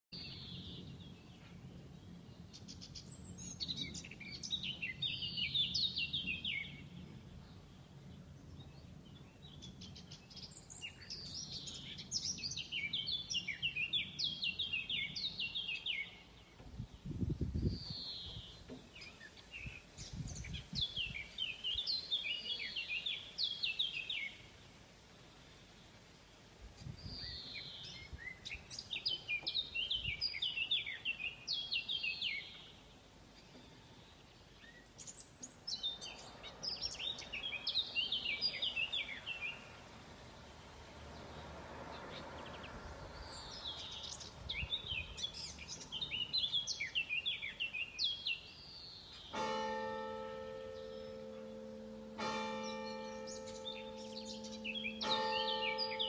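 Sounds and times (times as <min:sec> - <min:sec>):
songbird trilling: 0:52.6 - 0:56.0.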